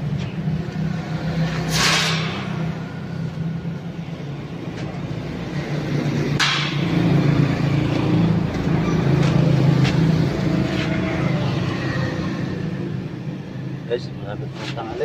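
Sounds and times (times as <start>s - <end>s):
sharp metallic knock: 1.7s - 2.8s, 6.4s - 7.1s.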